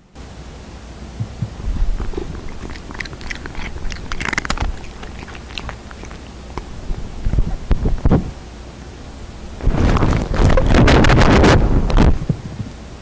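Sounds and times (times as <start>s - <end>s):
cat nose clicking on microphone: 1.8s - 8.3s.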